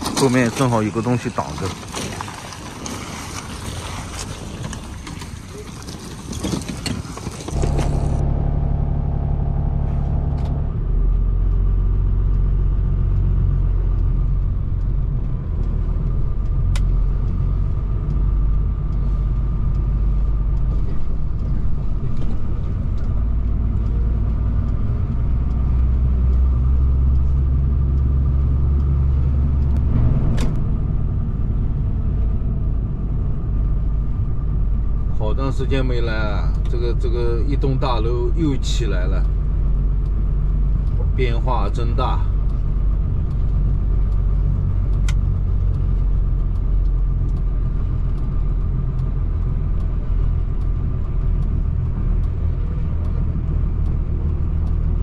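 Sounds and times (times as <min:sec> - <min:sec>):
roadside traffic noise: 0:00.0 - 0:55.0
truck engine low hum: 0:00.0 - 0:55.0.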